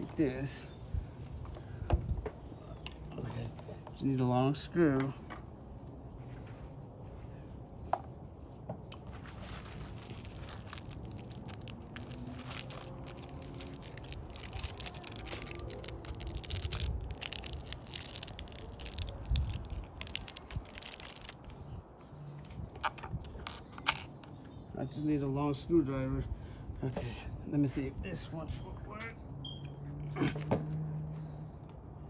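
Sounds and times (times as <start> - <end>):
plastic crackling and scraping: 9.3 - 21.5.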